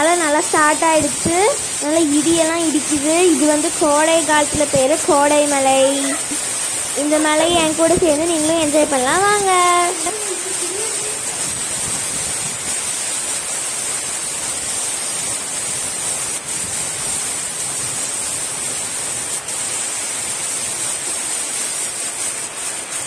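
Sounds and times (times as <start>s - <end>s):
wind through palm fronds: 0.0s - 22.8s
rain falling: 0.0s - 23.0s.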